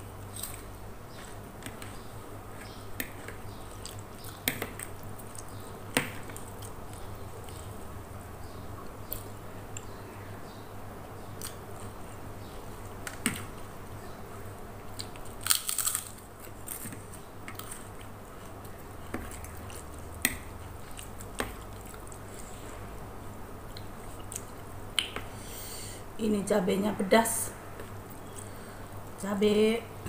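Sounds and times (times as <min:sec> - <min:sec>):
steady low hum: 0:00.0 - 0:30.0
close-up chewing: 0:00.2 - 0:05.6.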